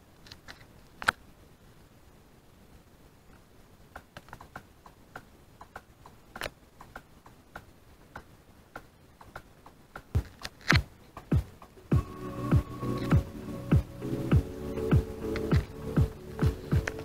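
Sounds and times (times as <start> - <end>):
deep bass thump: 11.3 - 17.0.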